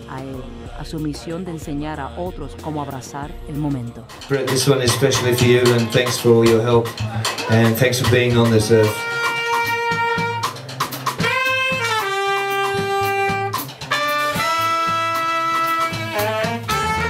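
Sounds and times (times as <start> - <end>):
drum and bass backing: 0.0 - 17.0
saxophone long held notes: 8.4 - 17.0.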